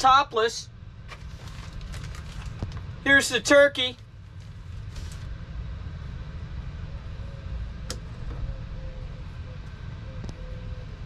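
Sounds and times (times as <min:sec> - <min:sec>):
low machine rumble: 0:00.0 - 0:11.0.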